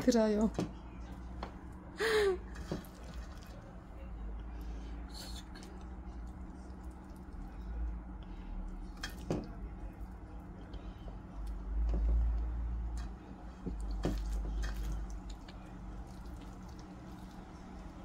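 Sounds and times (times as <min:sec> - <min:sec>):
hands squishing wet cucumbers: 0:02.5 - 0:03.9, 0:05.2 - 0:07.9, 0:08.6 - 0:18.0.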